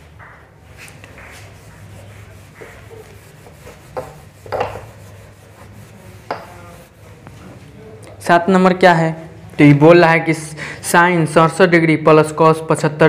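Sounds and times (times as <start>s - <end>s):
cloth rubbing whiteboard: 0.7s - 7.6s.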